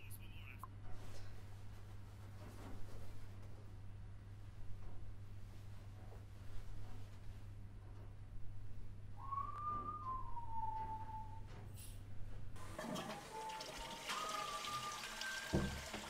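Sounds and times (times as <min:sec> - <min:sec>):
steady low hum: 0:00.0 - 0:12.7
sliding whistle-like tone: 0:09.2 - 0:11.7, 0:12.6 - 0:16.0.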